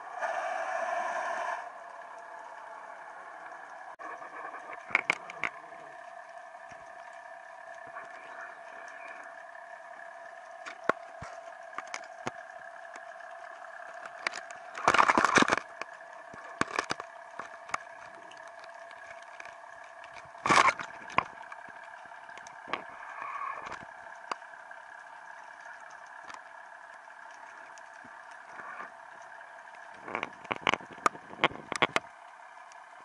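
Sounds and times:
steady underwater tonal hum: 0.0s - 33.0s
sharp clicks: 3.3s - 32.8s.

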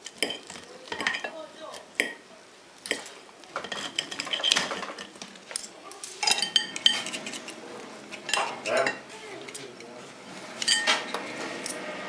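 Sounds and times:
cutlery scraping ceramic plates: 0.0s - 1.4s, 2.9s - 9.8s, 10.5s - 11.8s.

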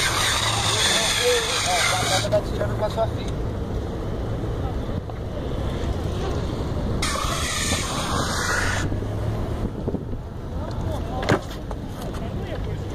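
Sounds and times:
longboard wheels rumbling on concrete: 0.0s - 3.1s, 5.0s - 12.9s
wind buffeting microphone: 6.7s - 10.4s
loud hiss: 7.0s - 8.9s.

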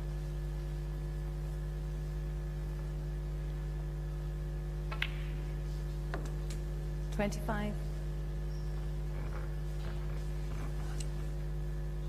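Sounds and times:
electrical mains hum: 0.0s - 12.0s
snooker balls striking: 4.9s - 6.4s.

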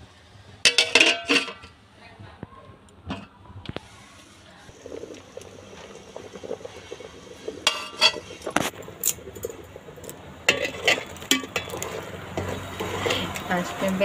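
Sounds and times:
ladle clinking against pot: 0.7s - 1.7s, 7.6s - 8.4s, 10.5s - 13.4s.

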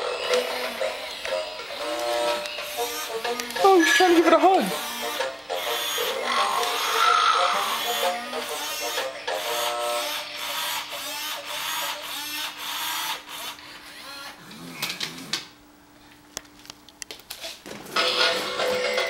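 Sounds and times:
toy motors whirring: 0.0s - 14.9s.

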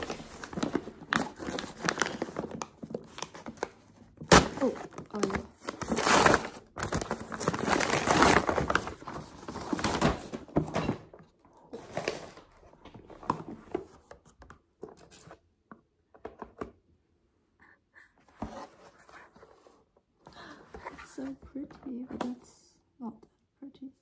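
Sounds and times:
wrapping paper tearing and crumpling: 0.0s - 3.4s, 4.3s - 10.0s.

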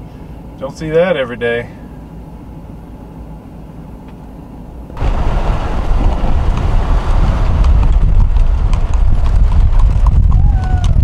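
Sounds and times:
quiet car cabin hum: 0.0s - 9.3s
wind buffeting microphone: 5.0s - 11.0s.

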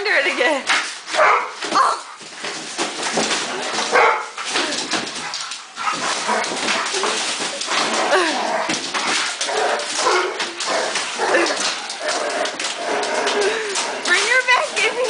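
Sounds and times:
dogs whining: 5.8s - 14.4s.

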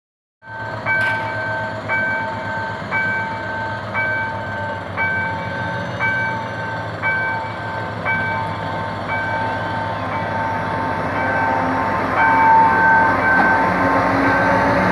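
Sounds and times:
diesel locomotive humming: 0.4s - 14.9s.

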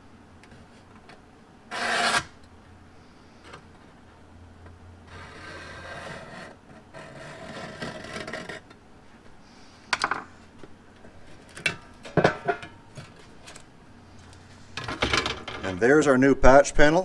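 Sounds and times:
awl scraping sheet steel: 1.7s - 2.4s, 5.0s - 8.7s.

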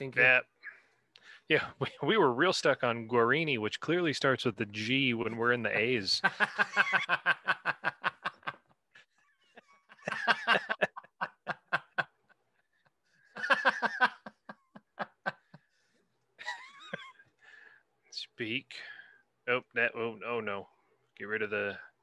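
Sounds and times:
person laughing: 6.2s - 8.6s, 9.6s - 12.1s, 13.4s - 15.6s, 16.4s - 17.2s.

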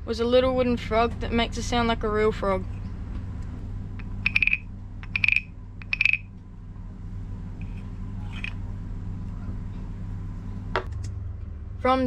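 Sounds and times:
wooden frog guiro croaking: 4.2s - 6.3s.

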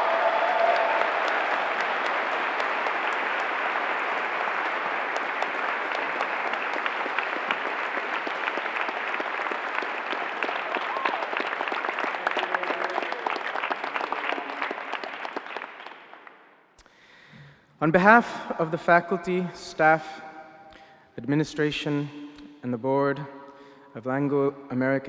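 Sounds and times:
audience applause: 0.0s - 16.5s.

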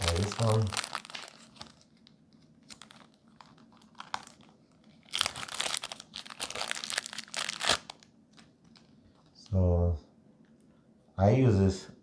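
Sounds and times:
plastic bag crinkling: 0.0s - 9.3s.

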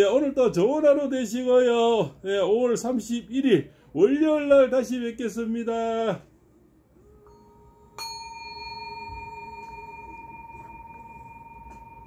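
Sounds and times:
bell ringing tone: 7.2s - 12.0s.

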